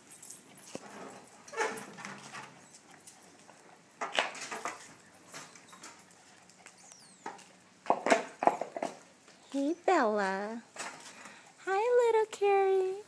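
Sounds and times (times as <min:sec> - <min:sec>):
dogs playing sounds: 0:00.0 - 0:11.7.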